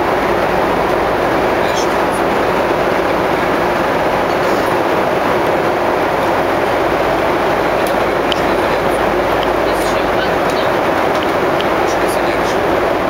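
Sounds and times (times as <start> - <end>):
aircraft cabin engine rush: 0.0 - 13.0.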